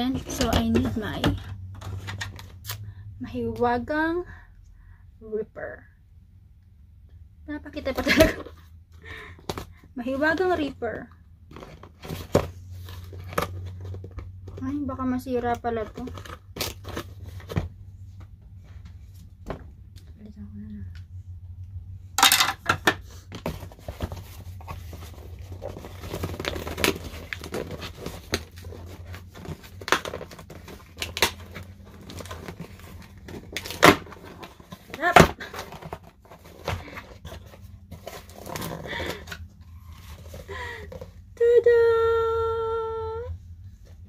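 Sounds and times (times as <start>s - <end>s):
cardboard tearing and crinkling: 15.9s - 17.6s, 23.4s - 40.4s.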